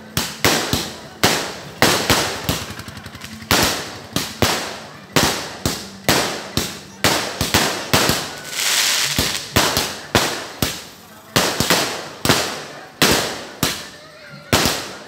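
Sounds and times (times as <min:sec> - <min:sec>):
fireworks banging: 0:00.0 - 0:15.0
fireworks crackling: 0:00.0 - 0:15.0
fizzing hiss: 0:07.4 - 0:12.2.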